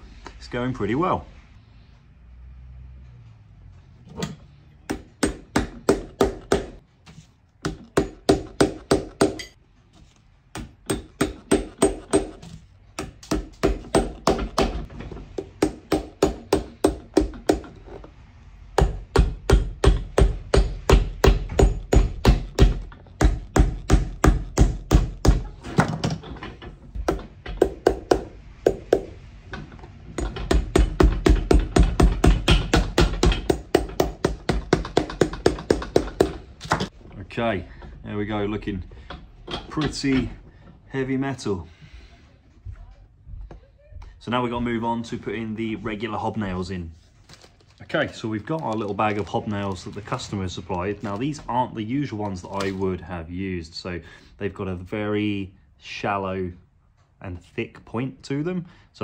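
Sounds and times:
hammer striking metal cleats: 4.0s - 6.8s, 7.6s - 9.6s, 39.0s - 40.4s.

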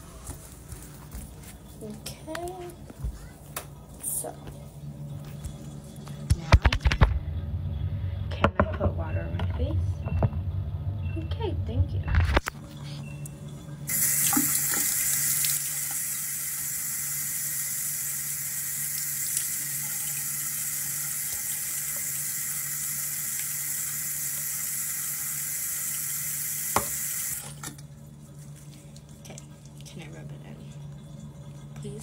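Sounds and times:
tap water running into sink: 13.9s - 27.8s.

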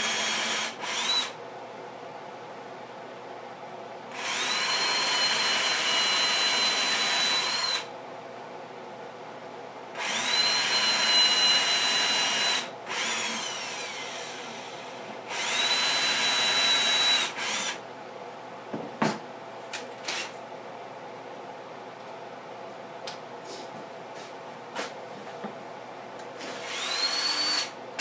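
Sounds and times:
electric drill whining: 0.0s - 1.4s, 4.1s - 7.9s, 10.0s - 17.8s, 26.6s - 27.8s.

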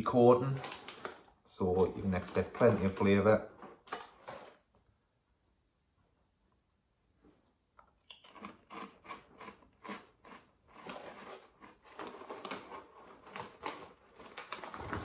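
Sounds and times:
person crunching crisps: 8.0s - 15.0s.

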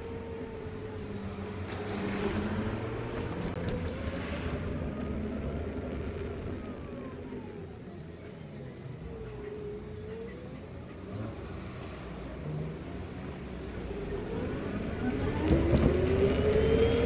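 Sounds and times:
road and wind noise: 0.0s - 17.0s.

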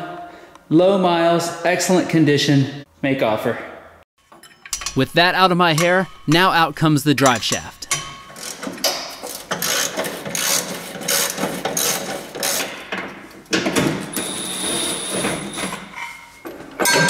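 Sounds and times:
ratchet wrench clicking: 9.5s - 12.7s.

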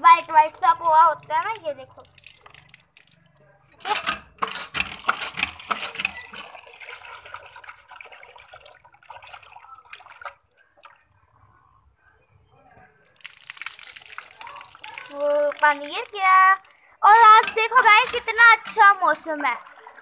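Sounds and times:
tap water running into bowl: 13.2s - 20.0s.

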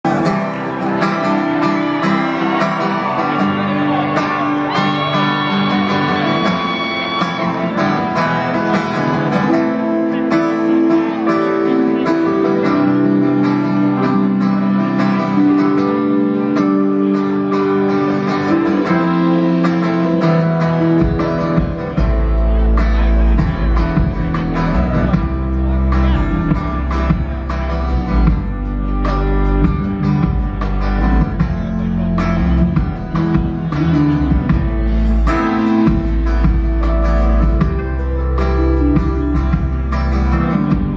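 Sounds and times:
strummed acoustic guitar: 0.0s - 40.9s
sustained keyboard chords: 7.9s - 40.9s
deep bass: 21.0s - 40.9s.

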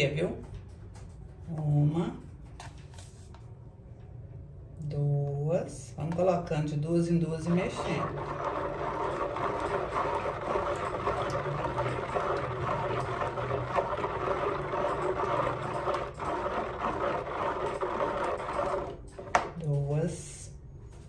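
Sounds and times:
liquid swishing in plastic bowl: 7.3s - 19.7s.

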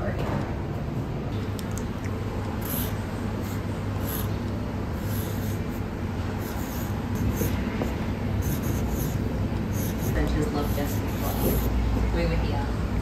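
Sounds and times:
steady low hum: 0.0s - 13.0s
marker scratching on wall: 2.6s - 4.4s, 5.0s - 11.7s.

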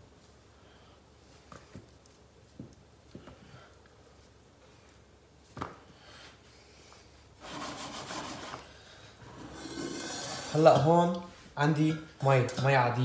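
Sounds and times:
chicken rubbing against glass dish: 9.2s - 10.8s.

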